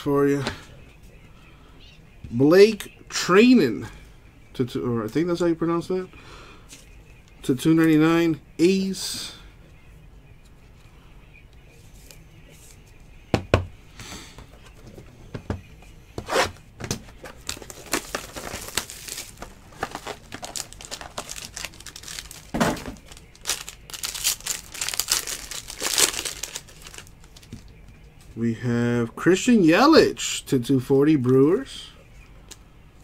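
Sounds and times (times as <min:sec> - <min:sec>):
foil wrapper crinkling and tearing: 0:17.2 - 0:27.5.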